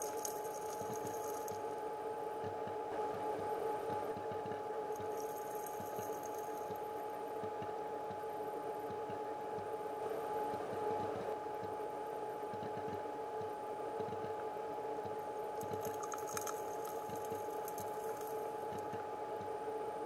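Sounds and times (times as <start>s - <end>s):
gravel stones clicking: 0.0s - 1.6s, 5.0s - 6.8s, 15.6s - 18.4s
underwater creek flowing over gravel: 0.0s - 1.7s, 5.0s - 6.8s, 15.6s - 18.4s
steady hum: 0.0s - 3.8s, 4.6s - 8.8s, 14.5s - 20.0s.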